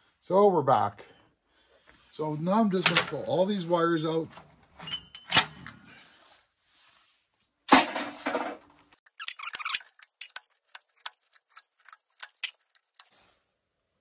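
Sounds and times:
wires scraping rustle: 9.0s - 13.4s
wires and plugs clicking: 9.1s - 13.1s.

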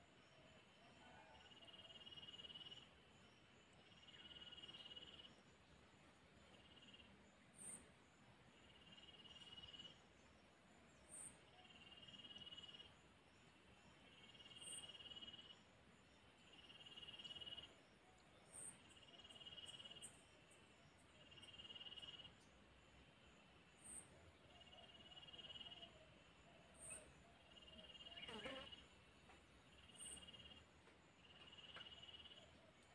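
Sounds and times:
very high insect chirp: 27.5s - 29.0s
insect buzzy trill: 28.0s - 28.9s.

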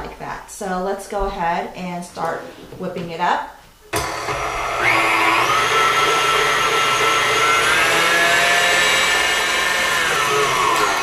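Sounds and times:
stand mixer motor whine: 4.0s - 11.0s.

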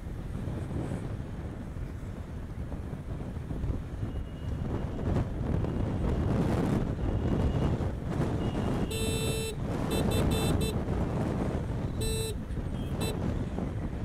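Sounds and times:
scooter road rumble: 0.0s - 14.0s
wind buffeting microphone: 0.0s - 14.0s
vehicle horn honking: 8.4s - 10.8s, 12.0s - 13.2s.

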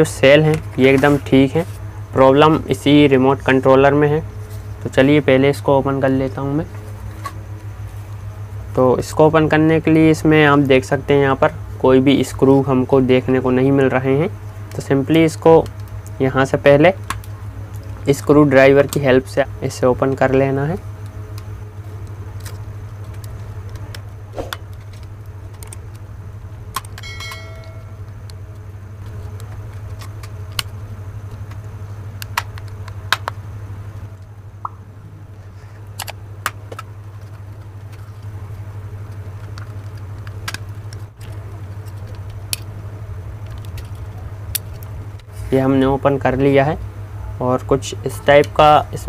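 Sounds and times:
steady low hum: 0.0s - 49.0s
plastic clicks and snaps: 32.2s - 33.4s.

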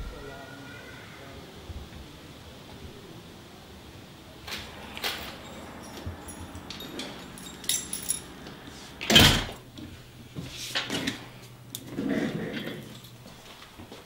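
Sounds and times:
rustling and shuffling: 4.4s - 14.0s
metallic clicks of keys: 4.8s - 8.4s
door closing with bang: 9.0s - 9.6s.

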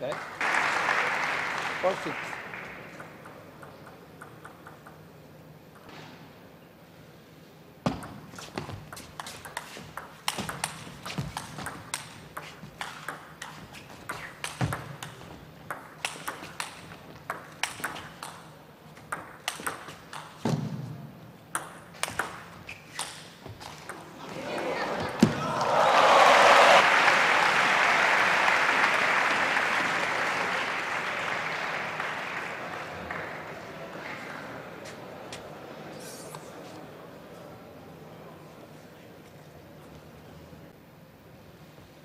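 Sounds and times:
table tennis ball clicking: 3.0s - 5.2s, 9.1s - 18.5s, 19.1s - 20.4s.

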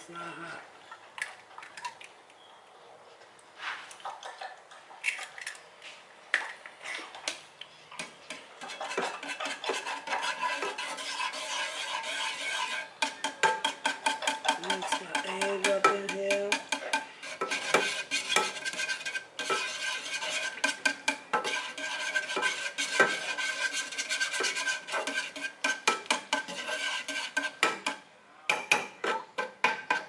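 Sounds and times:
metal utensil beating in saucepan: 8.0s - 30.0s.

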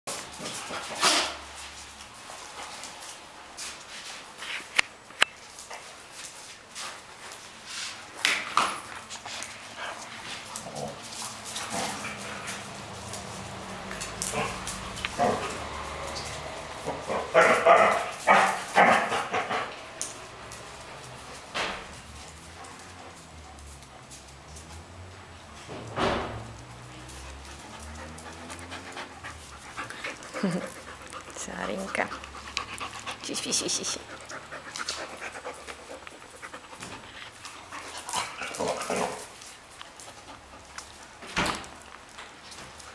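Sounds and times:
dogs panting: 8.0s - 25.1s, 26.5s - 41.2s
claws clicking on tile floor: 8.1s - 25.0s, 33.9s - 42.9s
dogs barking: 14.0s - 15.8s, 16.8s - 19.8s.

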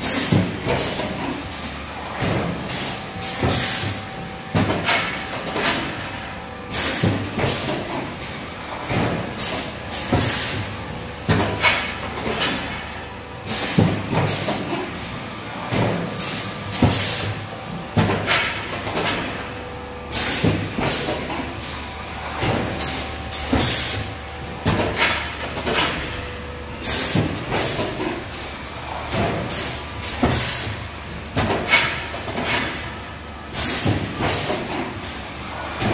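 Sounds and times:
faint machine hum: 0.0s - 35.9s
machine knocks and clanks: 0.0s - 35.9s
air hiss bursts: 20.1s - 21.1s, 33.5s - 34.5s.

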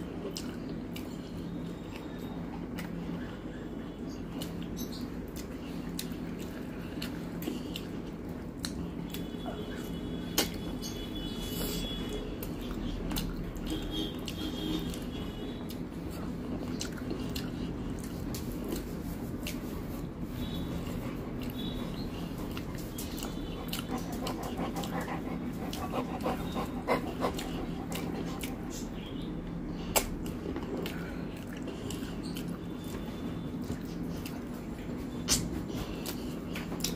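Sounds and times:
steady low hum: 0.0s - 36.9s
chewing: 0.1s - 3.4s, 4.2s - 29.2s, 29.9s - 36.9s
fingers squishing in food: 12.4s - 29.3s
sharp mouth clicks: 29.9s - 31.0s.

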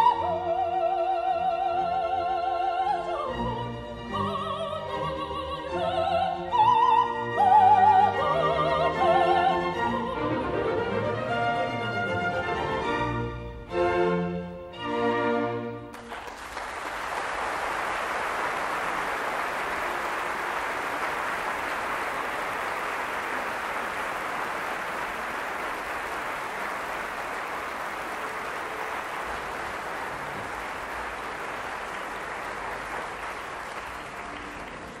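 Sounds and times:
audience applauding: 15.9s - 35.0s.

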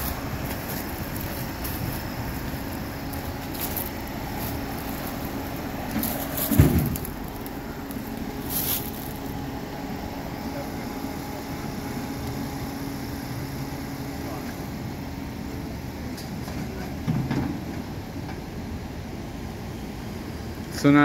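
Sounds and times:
faint crackling and rustling: 0.0s - 9.3s
car engine idling: 0.0s - 16.0s.

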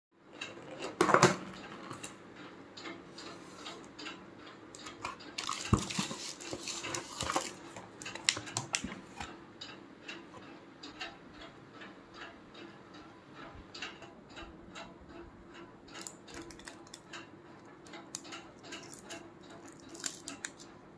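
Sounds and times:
cardboard box knocks and clicks: 5.4s - 7.5s.

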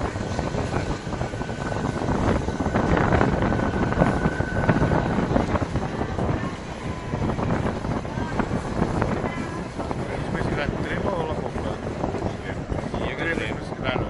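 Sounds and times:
high wheel whine: 0.0s - 14.0s
wind buffeting microphone: 0.0s - 14.0s.

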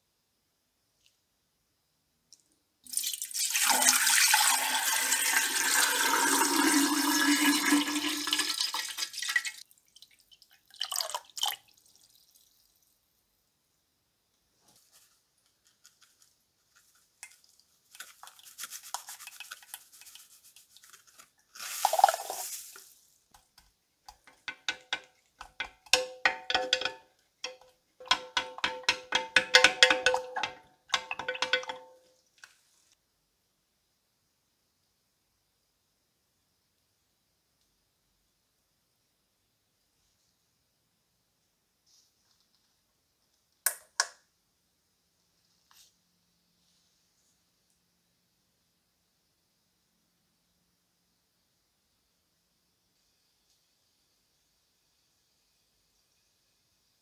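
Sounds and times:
water pouring into glass jar: 2.8s - 12.9s, 21.6s - 23.0s, 25.9s - 32.0s
stick knocking against glass jar: 24.1s - 32.0s.

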